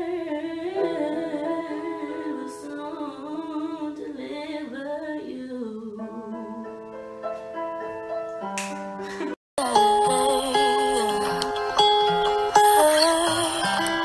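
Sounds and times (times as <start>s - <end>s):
woman singing: 0.0s - 6.8s, 9.6s - 11.7s, 12.6s - 14.0s
sustained instrumental chords: 8.5s - 14.0s.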